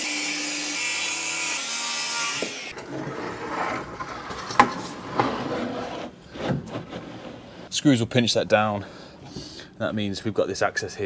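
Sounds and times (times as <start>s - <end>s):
circular saw cutting wood: 0.0s - 3.5s
wood rubbing and scraping: 2.7s - 7.7s.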